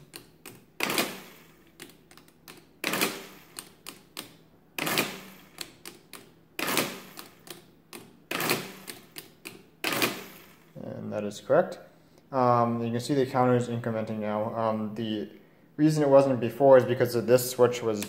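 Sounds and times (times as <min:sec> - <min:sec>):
calculator keys clicking: 0:00.0 - 0:10.1
mechanical calculator clatter: 0:00.0 - 0:10.6.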